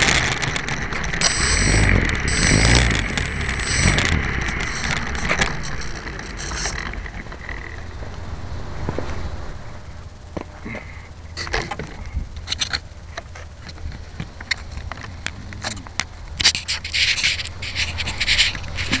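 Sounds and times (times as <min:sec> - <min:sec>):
sharp clicks: 0:00.0 - 0:07.8
close rustling: 0:16.4 - 0:19.0
scrapes against microphone: 0:16.4 - 0:19.0.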